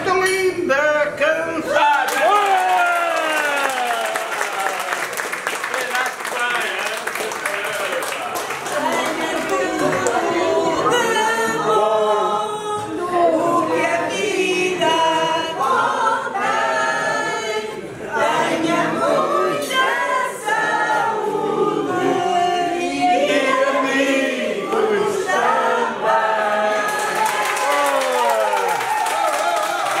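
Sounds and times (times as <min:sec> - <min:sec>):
group singing unaccompanied: 0:08.6 - 0:27.8.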